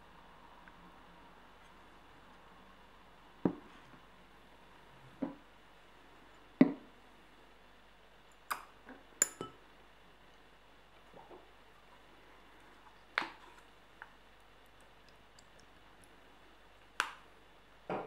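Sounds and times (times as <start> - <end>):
faint steady hiss: 0.0 - 18.0.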